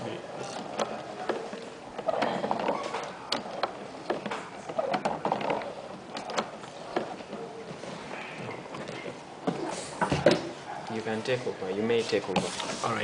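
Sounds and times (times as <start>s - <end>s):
sewing machine mechanism clicking: 0.4s - 7.2s.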